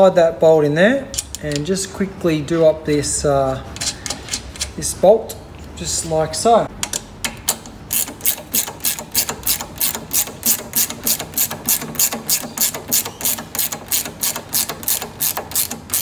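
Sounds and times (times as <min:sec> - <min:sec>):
socket ratchet clicking: 0:06.8 - 0:16.0.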